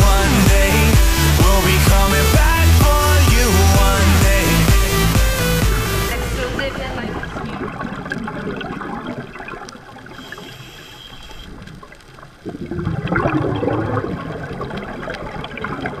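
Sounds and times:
muffled underwater bubbling: 0:05.8 - 0:16.0.

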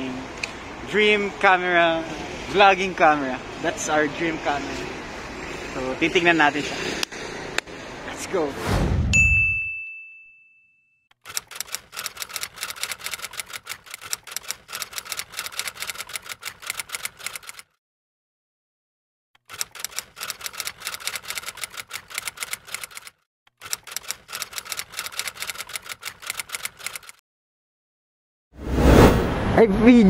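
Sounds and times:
typewriter key clacks: 0:11.3 - 0:17.6, 0:19.4 - 0:27.2.

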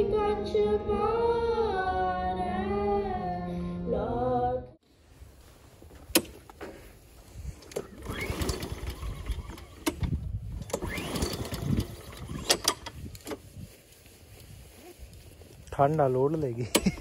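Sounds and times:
lawn mower engine cranking: 0:05.9 - 0:13.5, 0:16.3 - 0:17.0.

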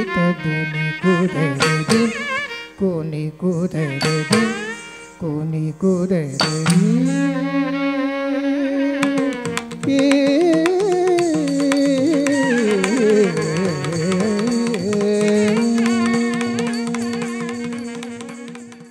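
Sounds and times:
ornamented melody: 0:00.0 - 0:18.9
quick rhythmic percussion: 0:01.6 - 0:02.5, 0:03.5 - 0:05.2, 0:06.2 - 0:07.5, 0:09.0 - 0:18.9.

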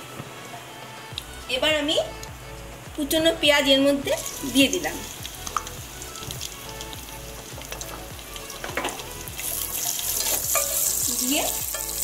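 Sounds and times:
onions sizzling in oil: 0:03.0 - 0:12.0.

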